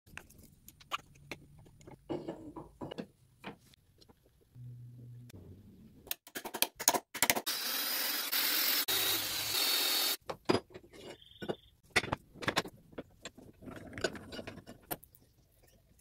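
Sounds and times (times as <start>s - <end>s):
cordless drill boring into metal: 7.5s - 10.2s.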